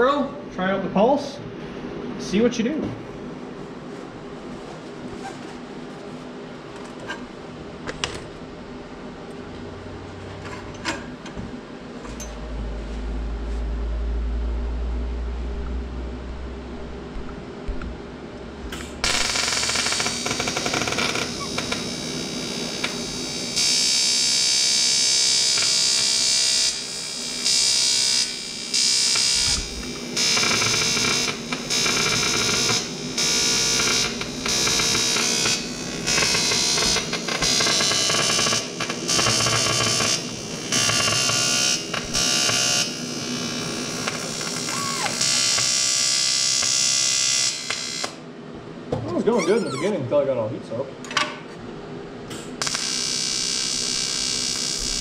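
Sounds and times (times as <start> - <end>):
welding arc buzzing hiss: 18.7 - 48.2, 52.3 - 55.0.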